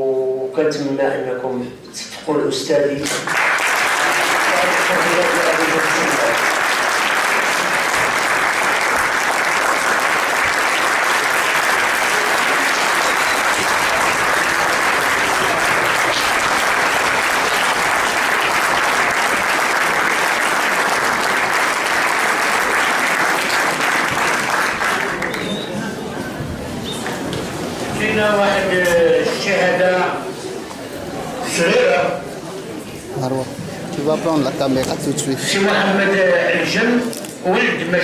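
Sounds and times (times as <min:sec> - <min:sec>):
audience applauding: 0:03.0 - 0:26.1.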